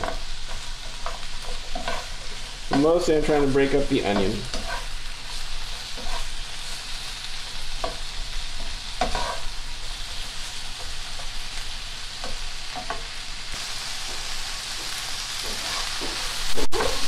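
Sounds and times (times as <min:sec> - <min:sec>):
spatula scraping and tapping pan: 0:00.0 - 0:06.8, 0:07.7 - 0:11.5, 0:14.1 - 0:17.0
vegetables sizzling in frying pan: 0:00.0 - 0:17.0.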